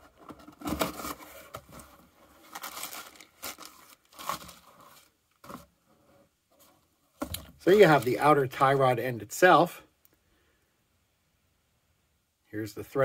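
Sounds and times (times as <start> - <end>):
cardboard box rustling: 0.0 - 5.7.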